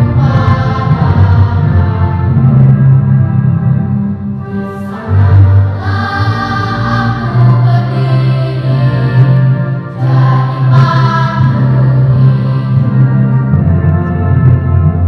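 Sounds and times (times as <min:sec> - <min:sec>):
children's choir singing: 0:00.0 - 0:02.3, 0:04.6 - 0:13.4
low sustained accompaniment notes: 0:00.0 - 0:15.0.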